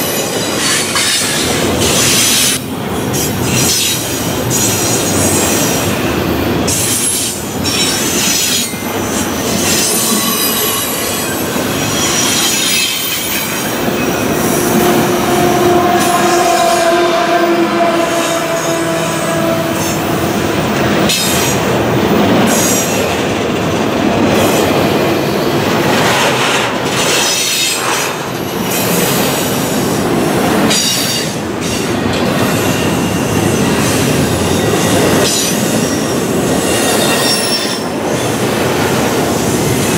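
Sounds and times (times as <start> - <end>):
train wheels rumbling on rail: 0.0 - 39.9
high-pitched wheel squeal: 9.6 - 20.3
low squealing tone: 9.8 - 20.7.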